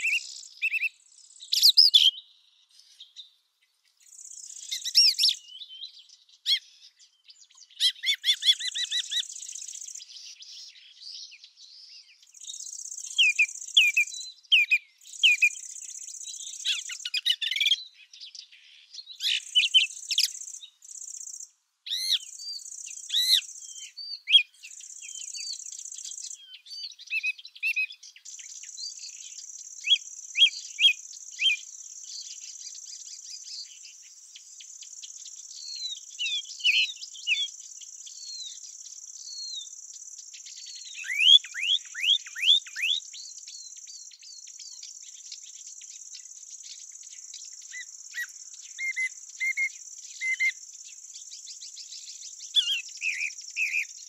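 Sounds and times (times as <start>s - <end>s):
songbirds chirping and singing: 0.0s - 54.0s
high insect trill: 19.3s - 21.5s, 28.2s - 54.0s.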